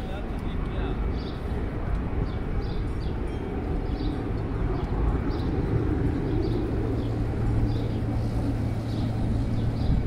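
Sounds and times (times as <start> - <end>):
engine rumble: 0.0 - 10.0.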